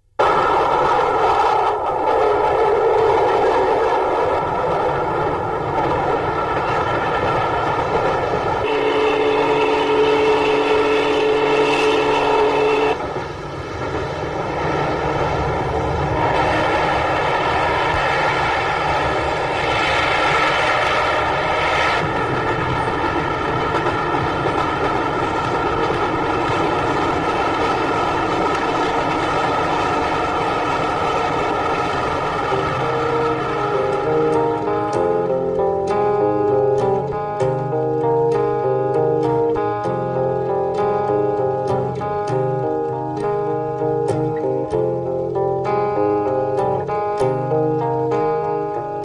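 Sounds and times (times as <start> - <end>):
music: 21.5 - 49.0.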